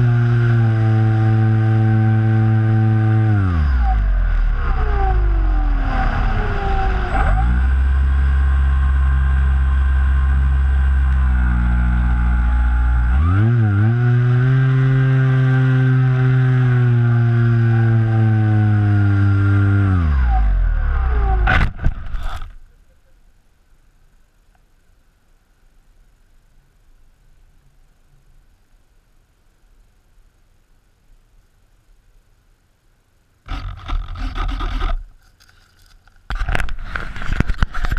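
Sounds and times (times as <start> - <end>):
electric motor and propeller humming: 0.0 - 22.6.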